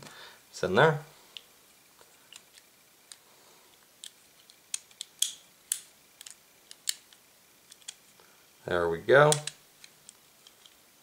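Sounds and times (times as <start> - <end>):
revolver parts clicking: 2.2 - 8.1, 9.2 - 10.8.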